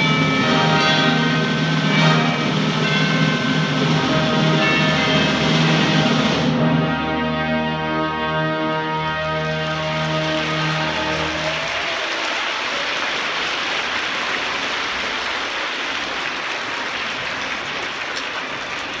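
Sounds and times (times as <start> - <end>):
orchestra chord: 0.0 - 11.6
audience applause: 9.3 - 19.0.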